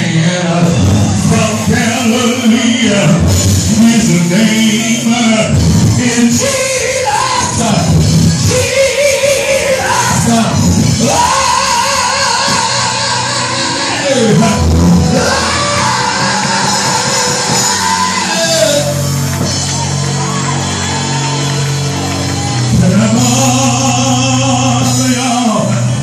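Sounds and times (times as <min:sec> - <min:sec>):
person singing and shouting: 0:00.0 - 0:19.0
instrumental accompaniment: 0:07.8 - 0:26.0.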